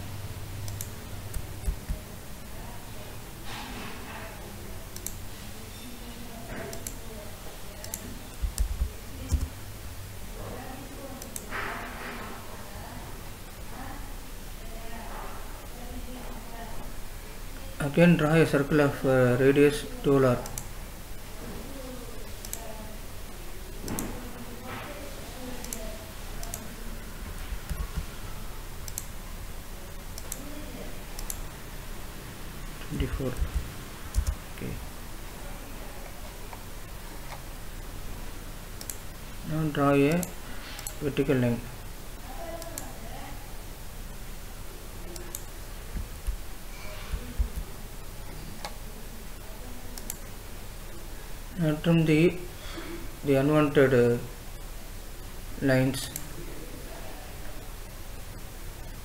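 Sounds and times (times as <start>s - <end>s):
room noise hiss: 0.0s - 59.0s
steady low hum: 0.0s - 59.0s
mouse buttons clicking: 0.6s - 2.0s
computer mouse clicking: 0.6s - 2.1s, 4.9s - 5.3s, 6.6s - 7.0s, 7.8s - 9.6s, 11.2s - 11.5s, 20.4s - 20.7s, 22.4s - 22.7s, 23.8s - 24.2s, 25.5s - 28.1s, 28.8s - 29.2s, 30.0s - 31.6s, 32.8s - 34.4s, 36.0s - 37.5s, 38.8s - 39.1s, 40.2s - 41.0s, 45.1s - 47.7s, 50.0s - 50.4s
dull low thumps: 33.4s - 34.4s.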